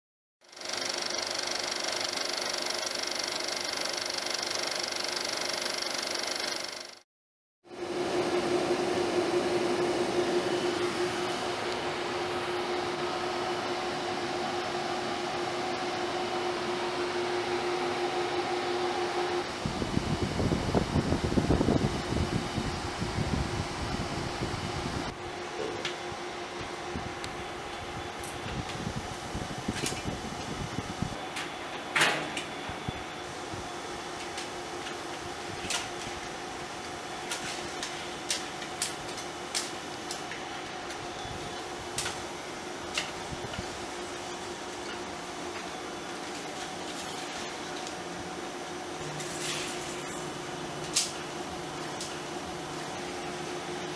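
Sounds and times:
film projector and fans humming: 0:00.4 - 0:07.0, 0:07.6 - 0:53.9
low mechanical rumble: 0:07.7 - 0:31.3.

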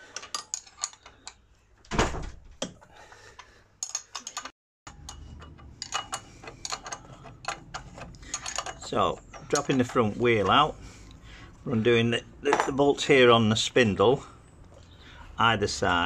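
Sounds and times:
spanner clicking on metal: 0:03.8 - 0:10.6.

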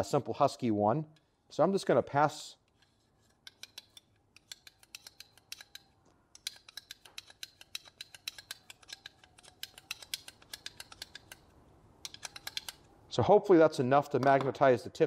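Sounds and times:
sharp metallic clicks: 0:02.7 - 0:12.9.

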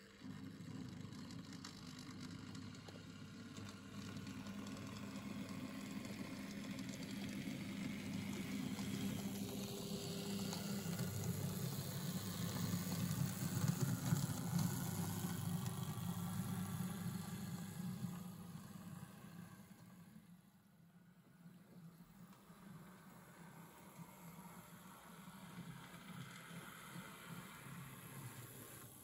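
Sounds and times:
small electric motor hum: 0:00.0 - 0:20.3
model train wheels rumbling: 0:00.0 - 0:20.4, 0:22.1 - 0:29.0.

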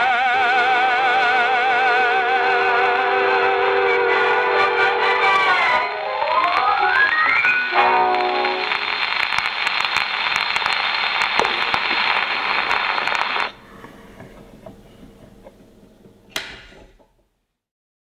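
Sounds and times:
record surface hiss and crackle: 0:04.5 - 0:17.6
gramophone arm clicks: 0:16.3 - 0:17.2.

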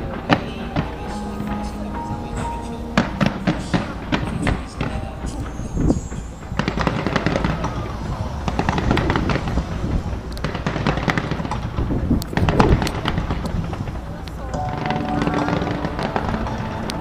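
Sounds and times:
fireworks popping and banging: 0:00.0 - 0:17.0.

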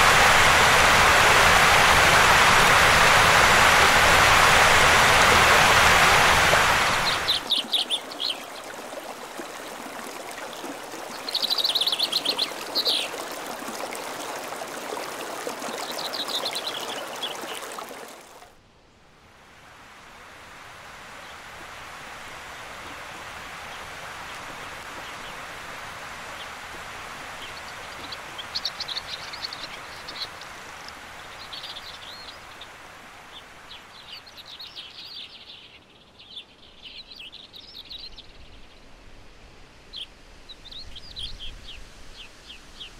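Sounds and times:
birds chirping: 0:00.0 - 0:18.4, 0:26.3 - 0:38.9
river rushing over gravel: 0:00.0 - 0:18.5.

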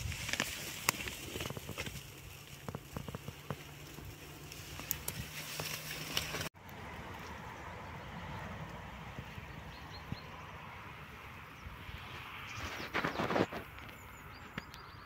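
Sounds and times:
dry leaves crackling underfoot: 0:00.0 - 0:07.8, 0:11.8 - 0:14.1.

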